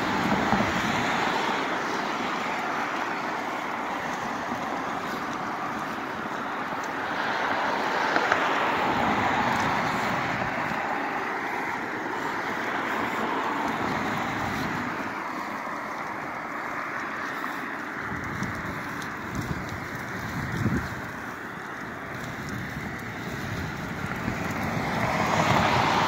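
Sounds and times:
tyres hissing from passing cars: 0.0s - 18.1s, 24.1s - 26.0s.

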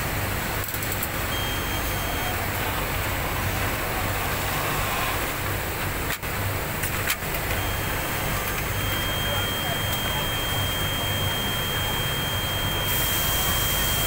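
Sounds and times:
industrial machinery humming: 0.0s - 14.0s.

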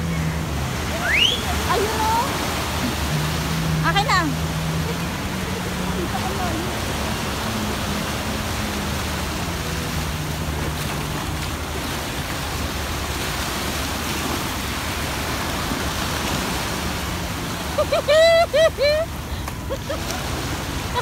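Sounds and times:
jet ski engine humming: 0.0s - 21.0s
waves washing on beach: 0.0s - 21.0s.

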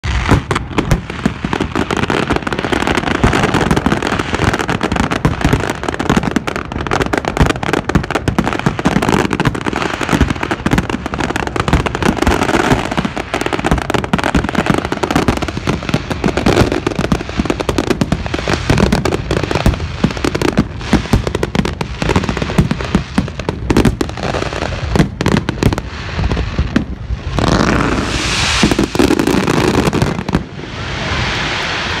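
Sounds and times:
fireworks bangs and crackling: 0.0s - 32.0s
steady rushing noise: 26.0s - 32.0s.

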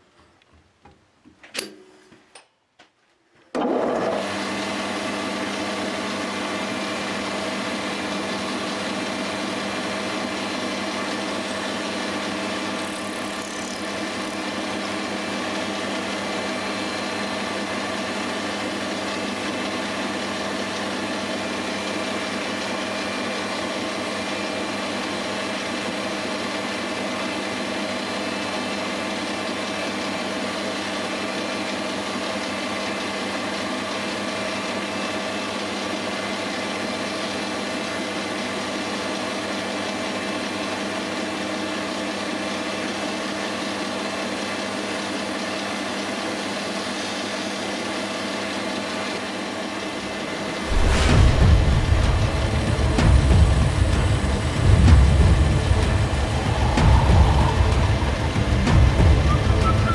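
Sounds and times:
metal lathe whining: 10.7s - 16.9s.

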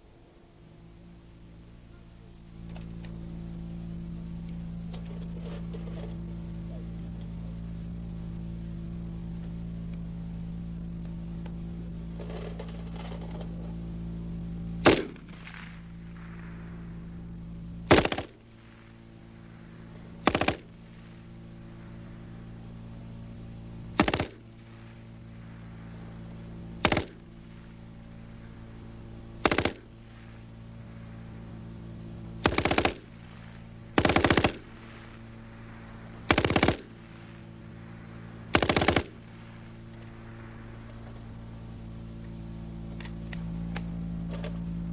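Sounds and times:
steady low hum: 0.0s - 44.9s
machine gun firing bursts: 14.8s - 17.0s, 17.8s - 19.0s, 19.8s - 21.1s, 23.9s - 25.6s, 26.8s - 27.7s, 29.4s - 30.3s, 32.4s - 37.3s, 37.9s - 39.6s.

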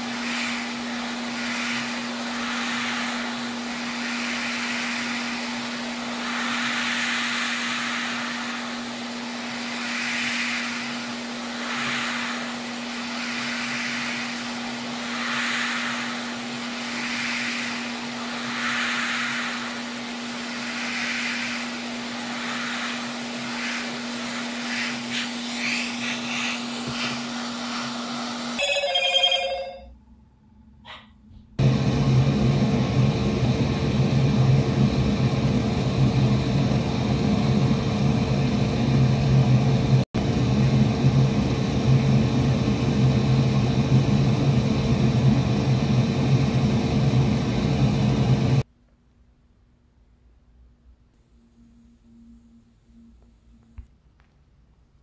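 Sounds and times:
airy hiss of blowing air: 0.0s - 28.6s
hot air station hum: 0.0s - 48.7s.

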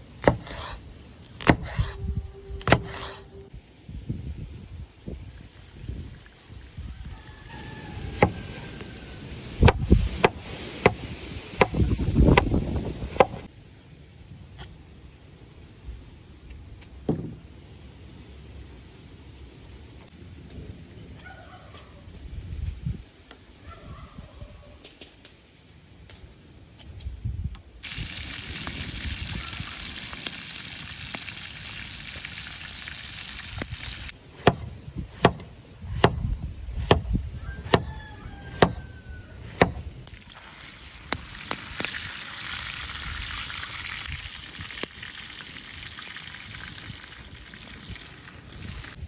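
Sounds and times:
cleaver chopping on wooden board: 0.2s - 0.7s, 1.4s - 1.8s, 34.4s - 37.9s, 39.5s - 39.8s
oil sizzling in a pan: 27.8s - 34.2s, 40.1s - 49.0s.

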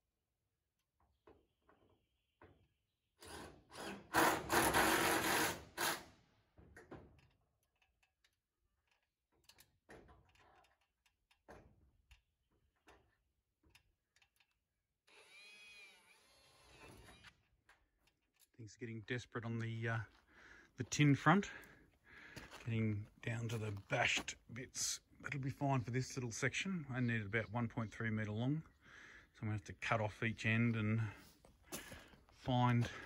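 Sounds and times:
cordless drill driving screws: 3.2s - 6.1s, 15.1s - 17.3s.

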